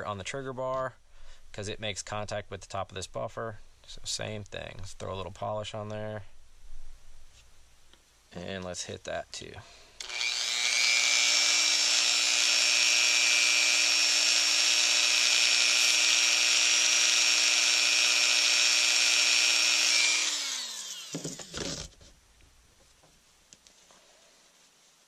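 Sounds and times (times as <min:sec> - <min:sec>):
rotary tool high whine: 0:10.0 - 0:22.0.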